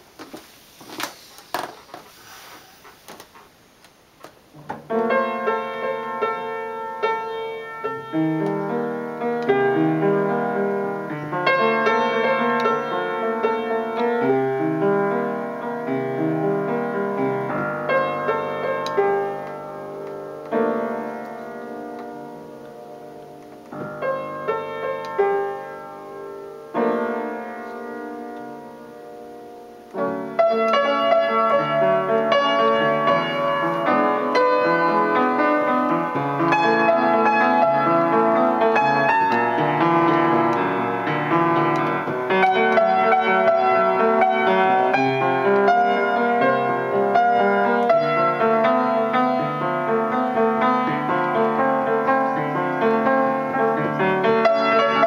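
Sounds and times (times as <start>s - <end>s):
out-of-tune upright piano: 0.0s - 55.0s.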